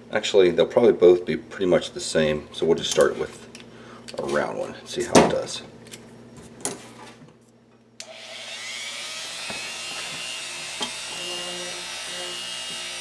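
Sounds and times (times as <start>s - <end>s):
rotary tool motor whining: 8.0s - 13.0s.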